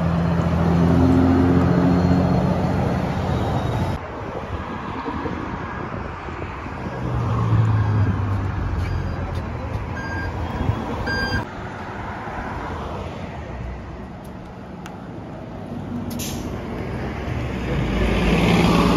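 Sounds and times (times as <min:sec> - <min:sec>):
vehicle engine passing by: 0:00.0 - 0:03.3, 0:16.2 - 0:18.9
passing traffic: 0:00.0 - 0:18.9
bus engine accelerating: 0:15.7 - 0:18.9.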